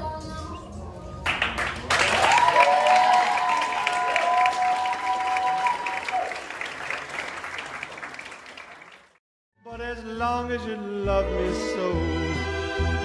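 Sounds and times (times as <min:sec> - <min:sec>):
music: 0:00.0 - 0:02.0, 0:09.6 - 0:13.0
audience applauding: 0:01.3 - 0:09.2.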